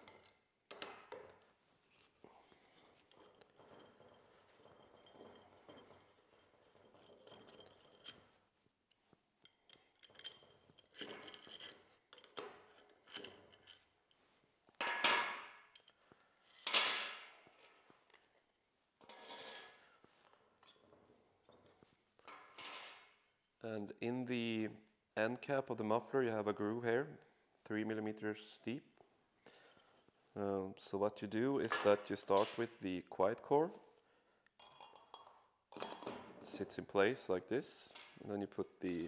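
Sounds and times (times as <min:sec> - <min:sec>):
metal parts scraping and rattling: 0:02.6 - 0:08.4, 0:09.5 - 0:14.3.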